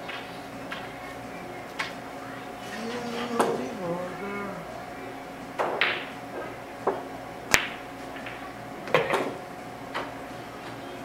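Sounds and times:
pool balls clacking: 0.0 - 4.9, 5.5 - 10.2
cue striking ball: 3.3 - 3.7, 5.6 - 9.4.

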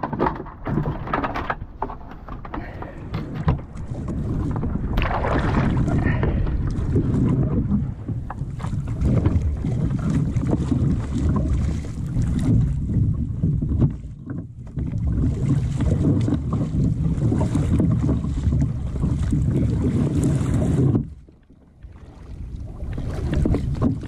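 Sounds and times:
wind buffeting microphone: 0.0 - 21.2, 21.9 - 24.0
kayak paddle splashing water: 0.0 - 24.0
sea wash: 0.0 - 24.0.

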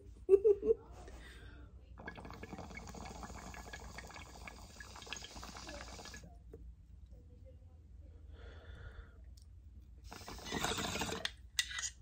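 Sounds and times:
water bubbling in a bong: 2.0 - 6.3, 10.1 - 11.3.

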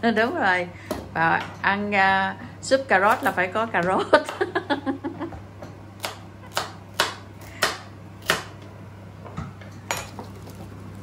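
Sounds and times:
knife chopping on plastic board: 6.0 - 8.6.

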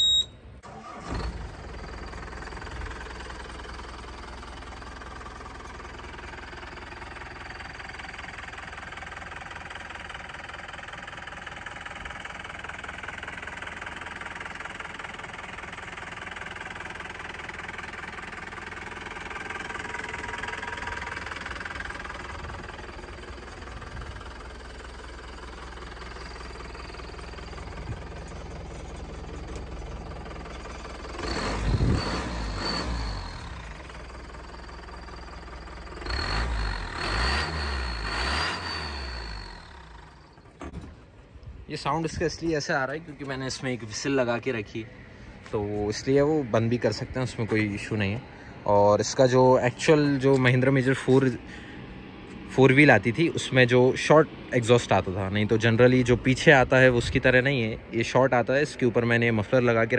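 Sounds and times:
engine whistle: 0.0 - 2.0, 36.0 - 40.3
diesel engine starting and idling: 0.0 - 59.9.

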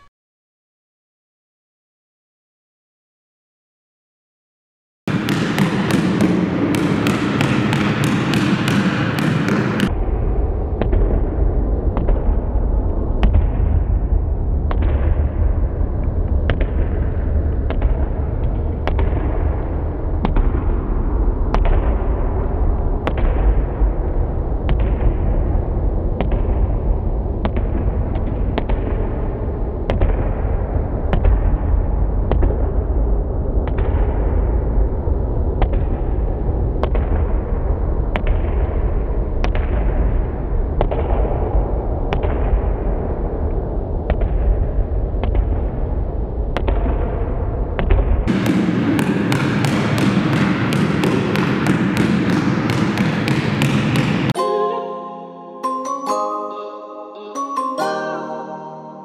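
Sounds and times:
basketball bouncing on gym floor: 5.1 - 9.9, 47.9 - 54.4.

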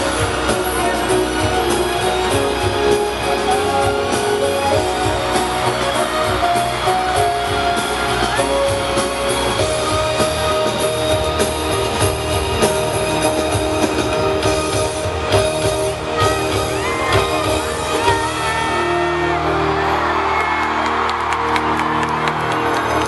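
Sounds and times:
live pop music with singing: 0.0 - 23.0
fans shouting and whooping: 15.2 - 23.0.

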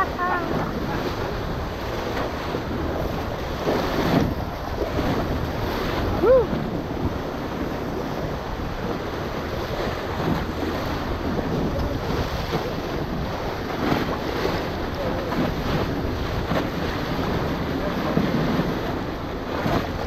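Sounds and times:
heavy splash: 0.0 - 20.0
whitewater rushing and splashing: 0.0 - 20.0
wind buffeting microphone: 0.0 - 20.0
person whooping: 6.2 - 6.6.

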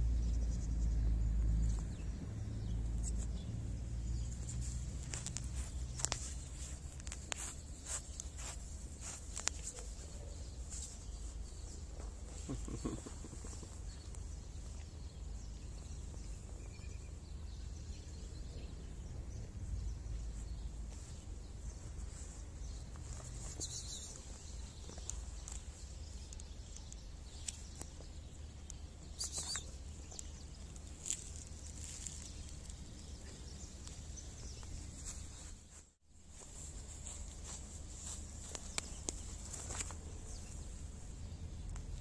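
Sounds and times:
background rumble and hiss: 0.0 - 42.0
brief rustling: 4.2 - 14.3.

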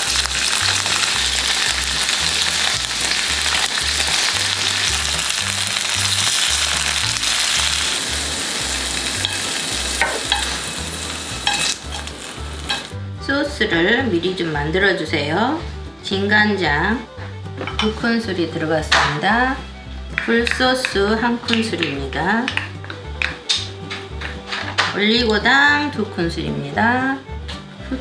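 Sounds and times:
tofu sizzling in hot oil: 0.0 - 13.0.

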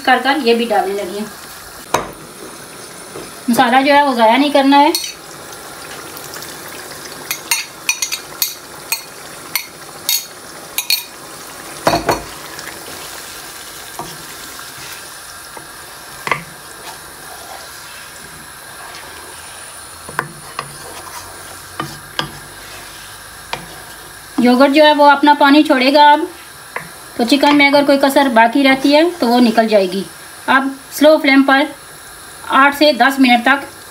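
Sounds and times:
gravy sizzling: 0.0 - 33.9
spatula knocking and scraping pan: 1.9 - 2.5, 11.8 - 12.4, 13.9 - 24.6.

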